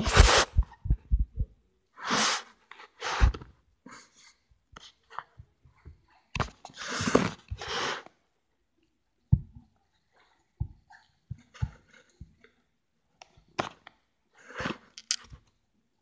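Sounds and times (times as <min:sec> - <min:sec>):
faint clicks and rubs: 0:14.9 - 0:15.6.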